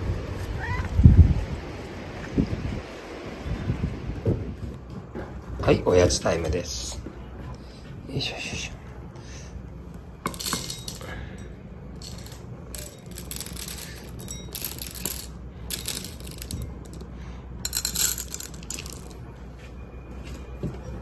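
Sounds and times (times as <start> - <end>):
dry cat treats rattling: 12.0 - 17.1, 17.7 - 19.2.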